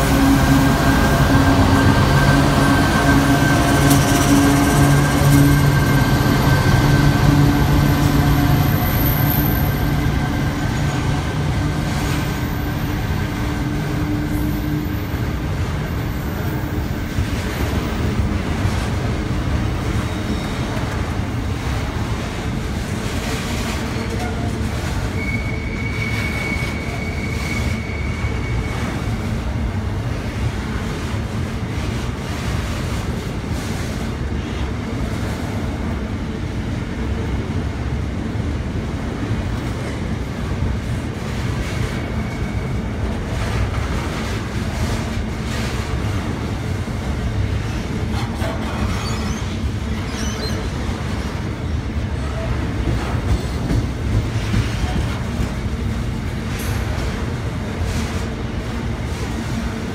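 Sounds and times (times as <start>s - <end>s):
diesel locomotive hum: 0.0s - 59.9s
train wheels rumbling and clattering: 0.0s - 59.9s
high wheel squeal: 0.7s - 15.2s, 25.1s - 29.2s, 48.7s - 50.9s.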